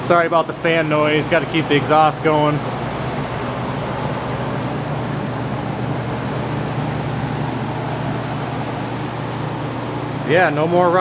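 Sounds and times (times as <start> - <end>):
exhaust fan air rush: 0.0 - 11.0
low hum: 2.6 - 11.0.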